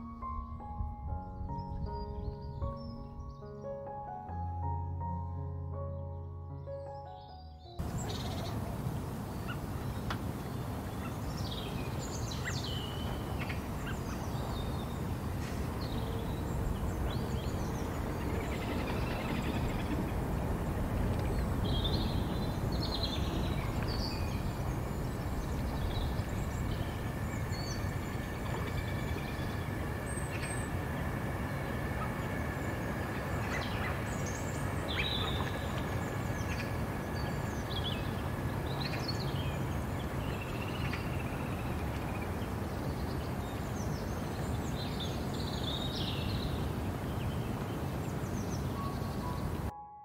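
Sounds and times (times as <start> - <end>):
bird calls and chirps: 6.6 - 8.7, 9.4 - 20.2, 21.1 - 47.6
steady low rumble: 13.2 - 44.8.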